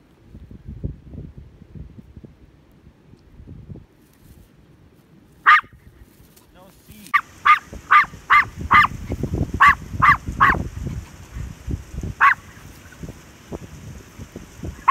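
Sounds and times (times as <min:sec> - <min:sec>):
small dog yapping: 0:05.4 - 0:05.8, 0:07.1 - 0:10.7, 0:12.2 - 0:12.7.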